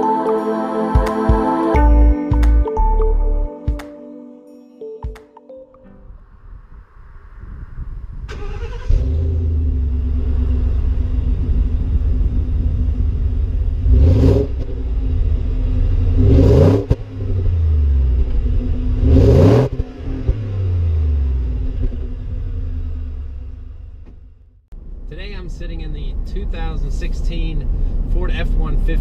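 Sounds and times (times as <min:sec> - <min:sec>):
engine idling and revving: 0:08.3 - 0:29.0.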